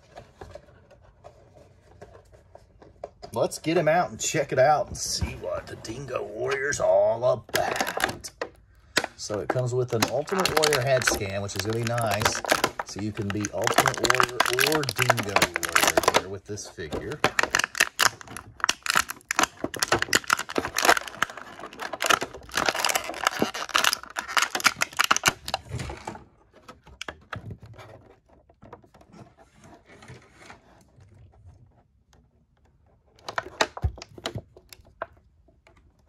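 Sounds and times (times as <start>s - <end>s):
plastic tray crinkling: 5.0s - 30.6s, 33.0s - 36.0s.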